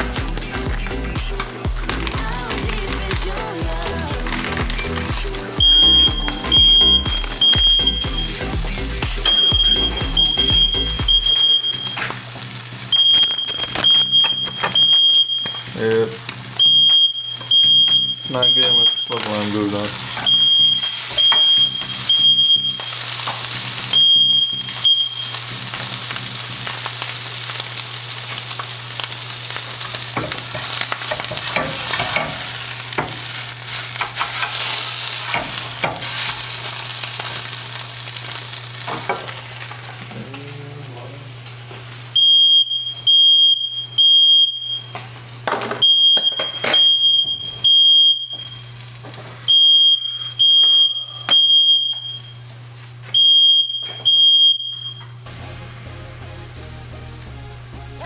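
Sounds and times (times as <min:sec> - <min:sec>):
eggs sizzling in a frying pan: 0:00.0 - 0:40.3, 0:41.1 - 0:58.0
smoke alarm beeping: 0:03.7 - 0:26.4, 0:42.1 - 0:55.5
spatula scraping a pan: 0:30.2 - 0:36.7
steady low hum: 0:55.2 - 0:58.0.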